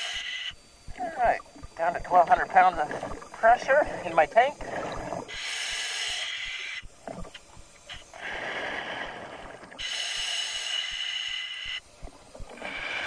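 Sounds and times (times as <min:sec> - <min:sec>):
bubbling underwater: 0:00.9 - 0:05.3
diver breathing through regulator: 0:02.8 - 0:06.8, 0:07.9 - 0:11.9, 0:12.5 - 0:13.0.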